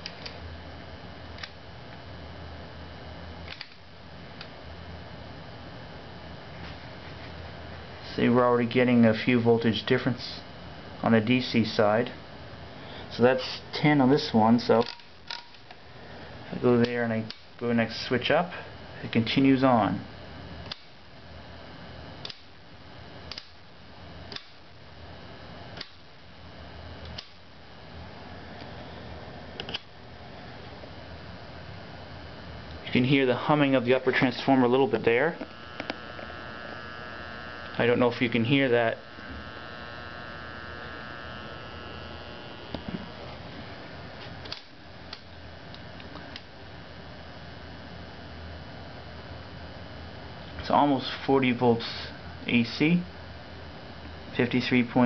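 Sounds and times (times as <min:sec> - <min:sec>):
faint transformer hum: 0:00.0 - 0:55.0
selector switch clicks: 0:23.3 - 0:23.6.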